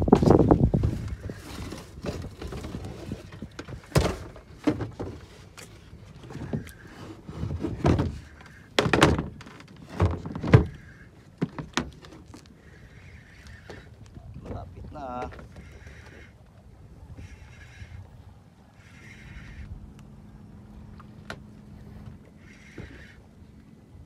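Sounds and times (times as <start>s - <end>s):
hollow thunks of boat rocking: 0.0s - 12.5s, 13.3s - 16.3s, 21.1s - 23.2s.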